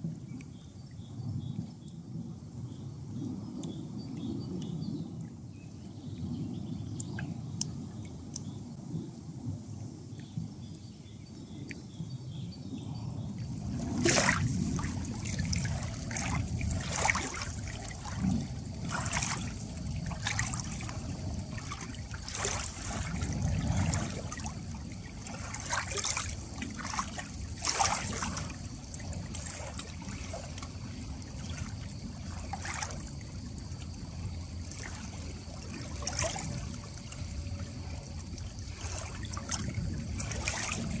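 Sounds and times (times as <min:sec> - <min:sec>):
river water lapping at shore: 0:13.3 - 0:41.0
short water splashes: 0:13.4 - 0:41.0.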